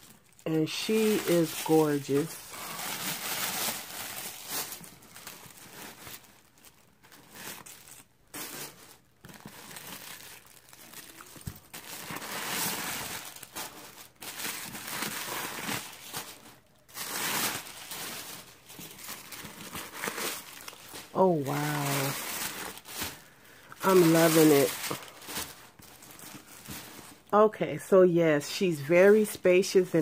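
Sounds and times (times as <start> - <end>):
tissue paper crumpling and rustling: 0.0 - 27.3.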